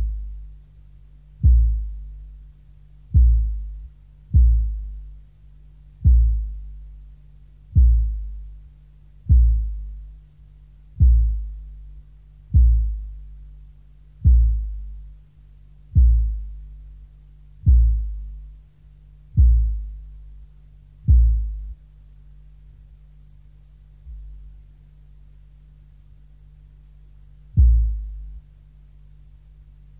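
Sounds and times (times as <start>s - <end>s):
deep low thuds: 0.0s - 0.6s, 1.4s - 2.4s, 3.0s - 5.3s, 6.0s - 7.1s, 7.7s - 10.2s, 10.9s - 13.6s, 14.2s - 15.2s, 15.9s - 17.0s, 17.6s - 18.6s, 19.3s - 20.3s, 21.0s - 21.8s, 24.0s - 24.6s, 27.5s - 28.5s
steady low hum: 0.0s - 29.9s.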